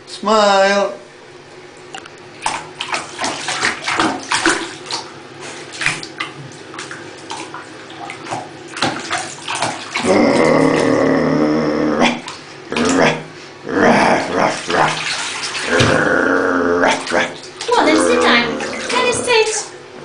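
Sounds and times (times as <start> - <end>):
puppy lapping water: 2.4 - 10.1, 14.3 - 16.0
bath tap running into tub: 2.4 - 13.1, 14.1 - 19.8.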